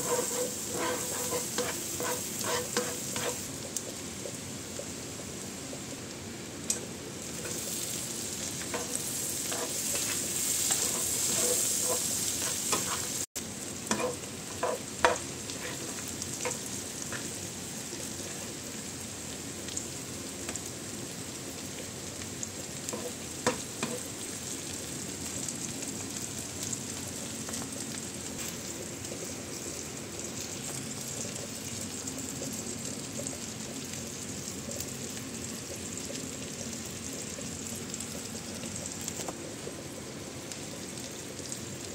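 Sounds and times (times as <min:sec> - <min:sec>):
shrimp sizzling in frying pan: 0:00.0 - 0:41.9.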